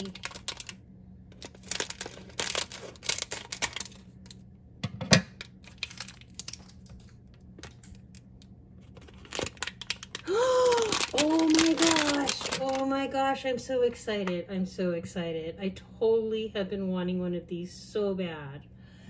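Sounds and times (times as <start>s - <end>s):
foil wrapper crinkling and tearing: 0.0s - 4.4s, 5.4s - 13.2s.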